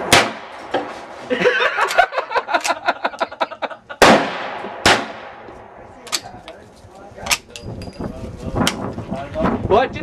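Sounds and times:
rifle shot with echo: 0.0 - 0.6, 4.0 - 6.3
sharp crack: 0.0 - 0.9, 4.0 - 6.4
person laughing: 1.3 - 4.0.

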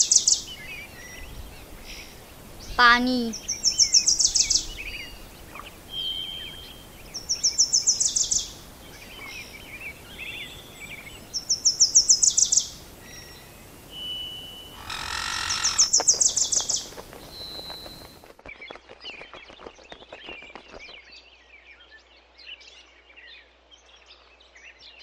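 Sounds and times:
bird chirps: 0.0 - 19.6
songbird trilling: 14.0 - 18.1
rushing scraping noise: 14.8 - 16.2.

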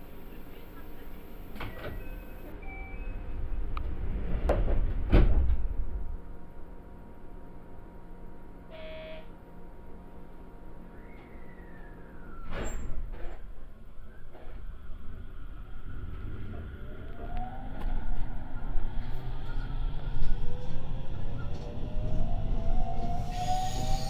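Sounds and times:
short beeps: 2.0 - 3.2, 8.7 - 9.3
train doors thumping shut: 4.3 - 5.8.

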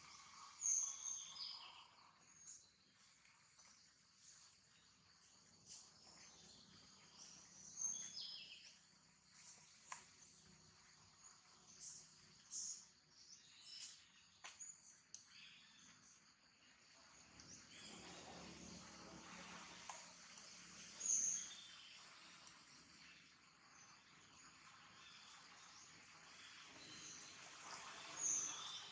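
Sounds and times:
bird chirps: 0.0 - 2.8, 5.7 - 8.8
soft hiss: 0.0 - 28.9.

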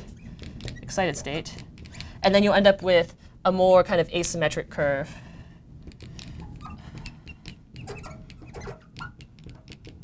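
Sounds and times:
marker squeaking on glass: 0.0 - 2.1, 6.4 - 10.0.

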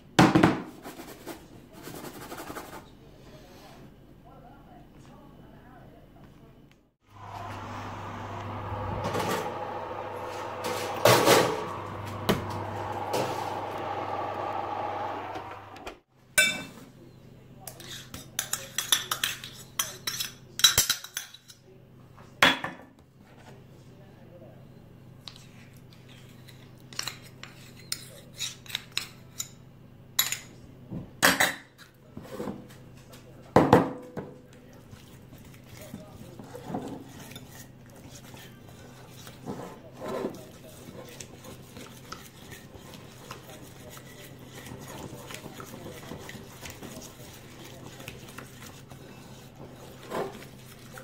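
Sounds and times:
oven fan humming: 7.0 - 16.0
spoon stirring in bowl: 34.5 - 51.0.

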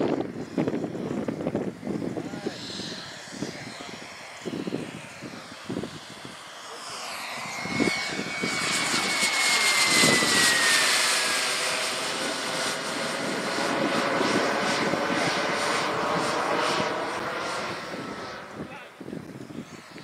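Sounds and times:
model jet turbine passing: 0.0 - 20.0.

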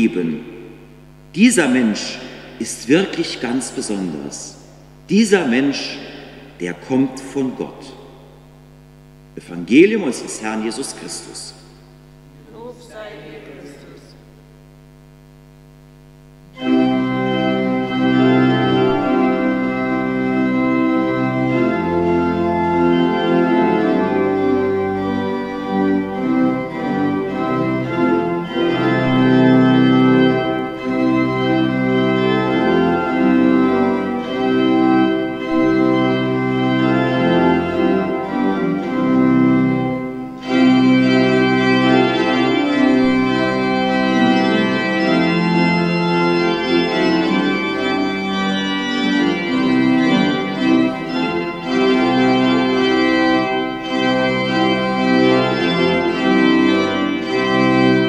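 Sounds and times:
faint hum: 0.0 - 53.8
church organ playing chords: 0.0 - 58.0.

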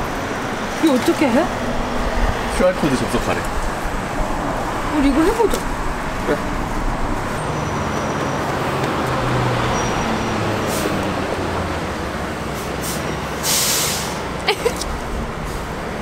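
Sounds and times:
street traffic: 0.0 - 16.0
loud hiss: 12.8 - 14.2.

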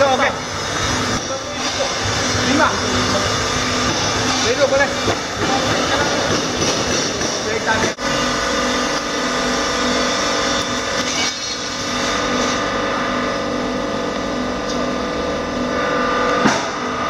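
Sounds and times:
forge air blower humming: 0.0 - 17.0.

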